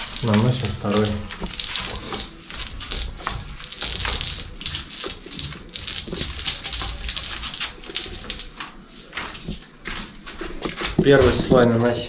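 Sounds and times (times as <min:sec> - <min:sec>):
paint roller rolling putty: 0:00.0 - 0:11.9.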